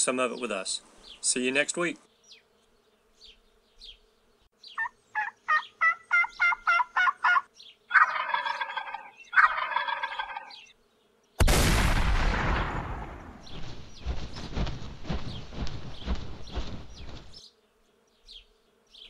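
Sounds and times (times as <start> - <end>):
turkey gobbles: 4.8 - 10.6
turkey yelping: 4.8 - 10.6
sudden loud noise: 11.4 - 14.6.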